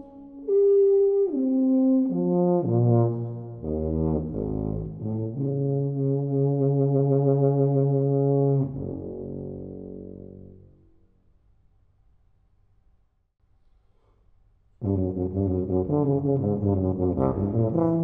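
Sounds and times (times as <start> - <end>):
tuba playing low notes: 0.0 - 10.9, 14.8 - 18.0.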